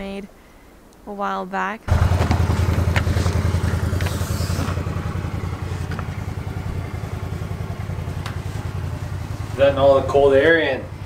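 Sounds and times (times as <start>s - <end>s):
engine idling: 1.9s - 11.0s.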